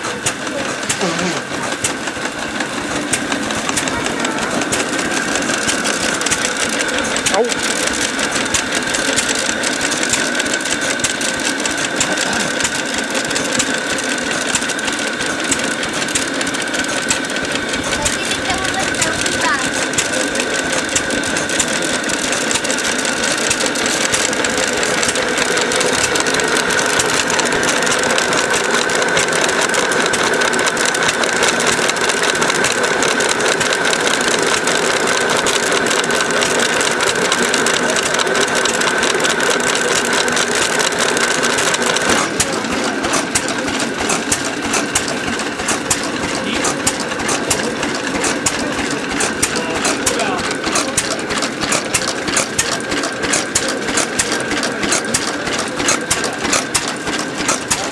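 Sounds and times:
stationary engine running: 0.0s - 57.9s.

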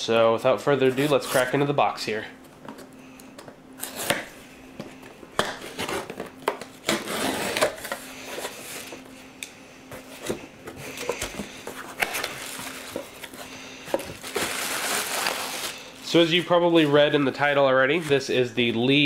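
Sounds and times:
faint steady hum: 0.0s - 19.0s
packing tape slit with blade: 6.8s - 8.0s
cardboard rustling and scraping: 9.9s - 19.0s.

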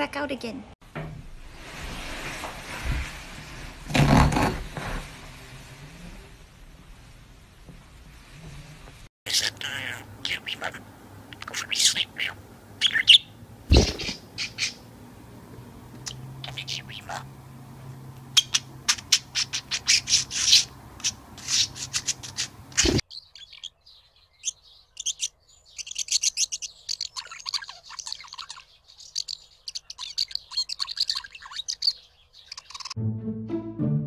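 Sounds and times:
budgerigars chirping and warbling: 9.3s - 14.9s, 16.0s - 17.3s, 18.3s - 33.0s.

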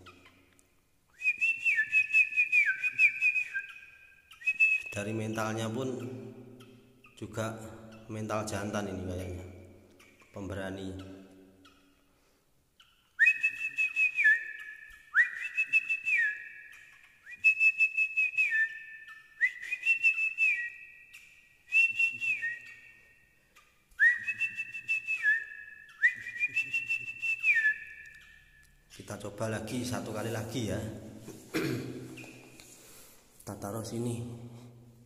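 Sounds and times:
two-tone bird call whistle: 1.2s - 5.0s, 13.2s - 23.2s, 24.0s - 28.6s.

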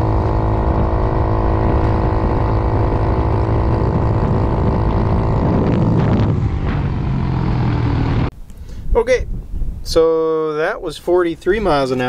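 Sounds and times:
scooter engine at full throttle: 0.0s - 8.3s
wind rumbling on microphone: 0.0s - 11.8s.

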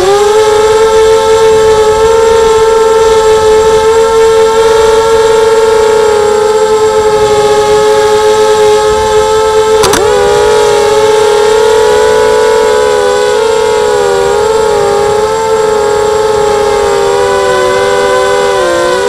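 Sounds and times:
drone motors whining: 0.0s - 19.0s
brief click: 9.8s - 10.1s.

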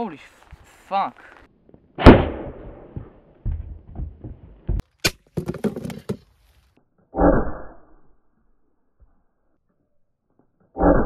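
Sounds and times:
loud gunshot: 2.0s - 3.0s.

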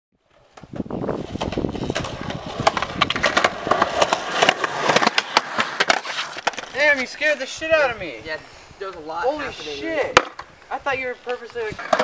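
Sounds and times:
skateboard wheels rolling on concrete: 0.2s - 12.0s
skateboard clicks and clacks: 0.5s - 7.0s, 11.2s - 12.0s.

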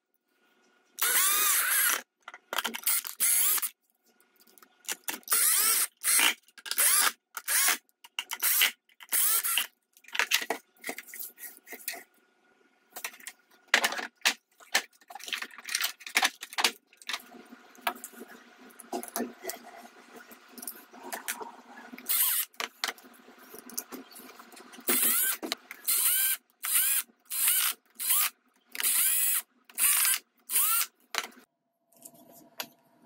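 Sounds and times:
electric screwdriver driving screws: 1.0s - 2.0s, 2.7s - 3.7s, 5.3s - 9.7s, 22.1s - 22.6s, 24.9s - 30.9s
plastic parts clicking: 1.0s - 3.7s, 4.4s - 11.1s, 13.0s - 17.2s, 29.7s - 31.4s.

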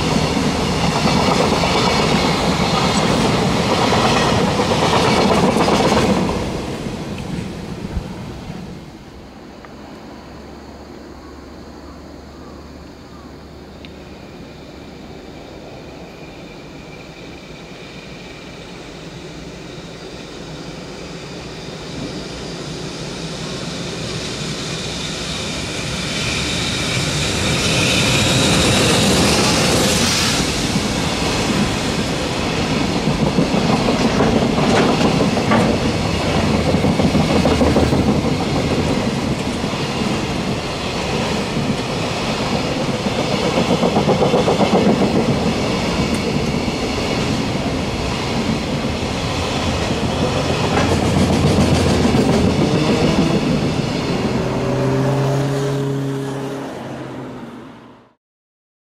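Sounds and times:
wheels clickety-clack on rail joints: 0.0s - 8.1s, 21.4s - 55.1s
freight train passing: 0.0s - 58.2s
high hiss of train: 0.0s - 58.2s.

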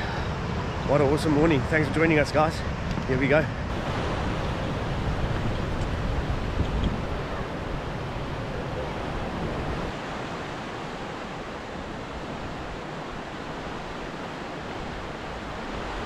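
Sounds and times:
surf breaking on rocks: 3.7s - 16.0s.

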